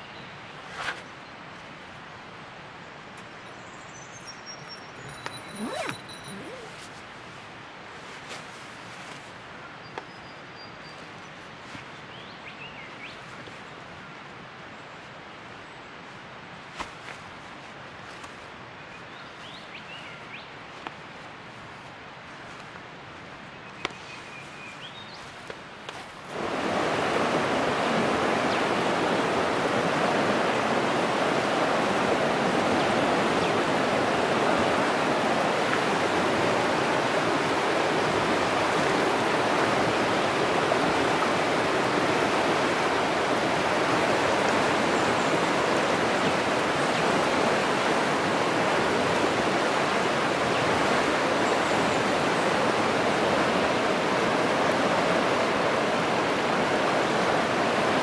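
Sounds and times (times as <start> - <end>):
river rushing: 5.2 - 7.0, 24.9 - 58.0.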